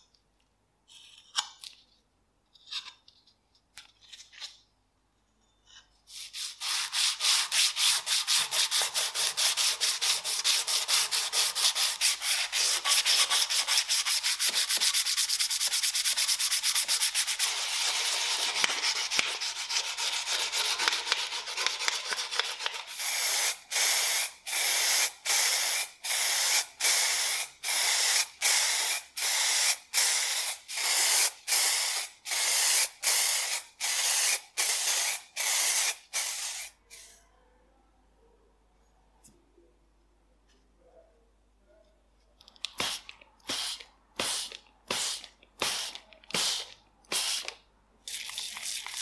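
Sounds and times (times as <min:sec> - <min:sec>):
sanding sponge scratching metal: 0:06.1 - 0:21.6
aerosol spray paint hissing: 0:22.9 - 0:37.1, 0:42.8 - 0:47.5.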